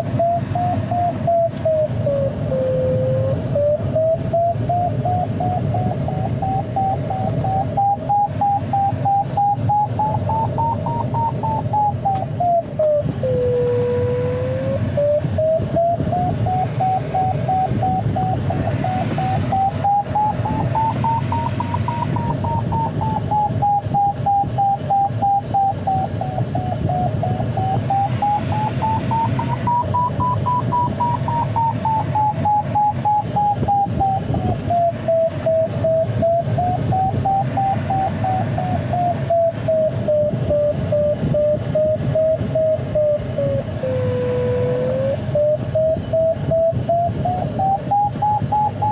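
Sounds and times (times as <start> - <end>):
airflow rushing in cockpit: 0.0 - 48.9
wavering variometer tone: 0.0 - 48.9.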